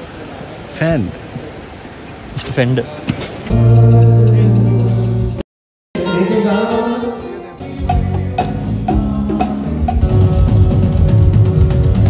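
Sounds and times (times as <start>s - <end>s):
live band playing: 3.5s - 5.4s, 6.0s - 12.0s
person singing: 6.0s - 11.4s
drum kit hits: 7.8s - 12.0s.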